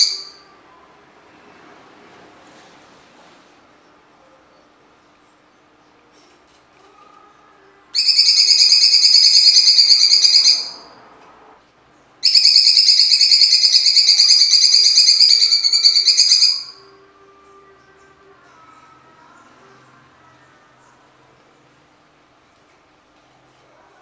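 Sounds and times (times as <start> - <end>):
bird singing rattling trills: 8.0 - 10.8, 12.2 - 16.8.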